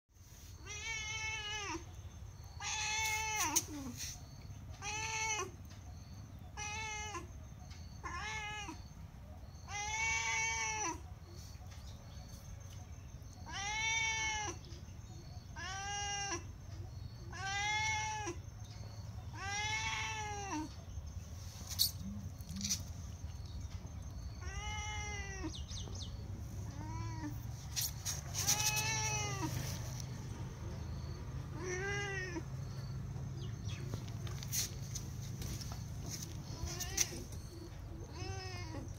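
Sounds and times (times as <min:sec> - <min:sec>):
cat meowing: 0:00.6 - 0:01.9, 0:08.0 - 0:08.8, 0:09.7 - 0:11.0, 0:13.4 - 0:14.6, 0:15.5 - 0:16.5, 0:17.3 - 0:18.4, 0:19.3 - 0:20.7, 0:24.4 - 0:25.7, 0:26.6 - 0:27.4, 0:28.4 - 0:29.9, 0:31.0 - 0:32.5, 0:38.1 - 0:38.9.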